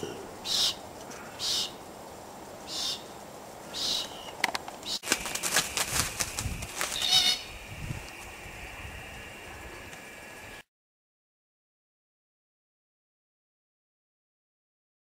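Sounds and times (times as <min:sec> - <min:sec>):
cockatoos calling: 0:00.0 - 0:01.9, 0:02.6 - 0:07.9
crackling and knocking noise: 0:04.4 - 0:07.0.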